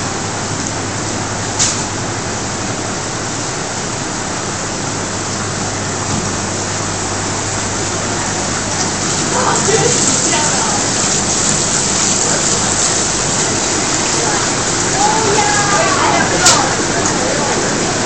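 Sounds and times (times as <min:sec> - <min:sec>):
steady rushing hiss: 0:06.8 - 0:18.0.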